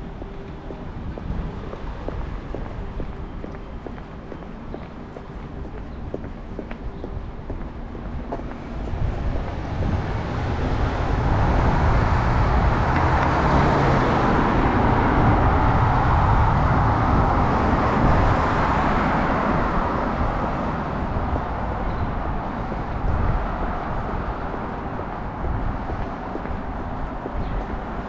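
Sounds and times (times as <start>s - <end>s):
vehicle passing: 7.8s - 28.0s.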